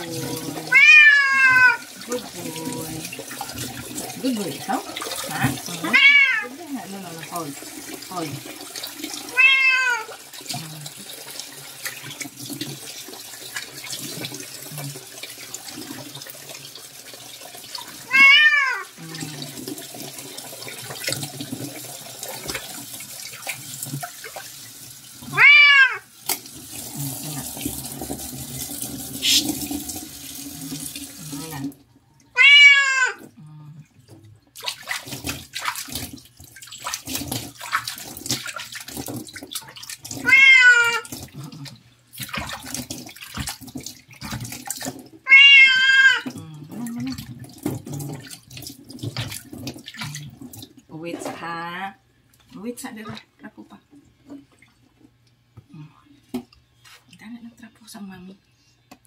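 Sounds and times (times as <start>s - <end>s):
tap water running and splashing: 0.0s - 51.7s
cat meowing loudly: 0.6s - 1.9s, 5.8s - 6.5s, 9.3s - 10.1s, 18.0s - 19.0s, 25.2s - 26.1s, 32.3s - 33.3s, 40.2s - 41.1s, 45.2s - 46.3s.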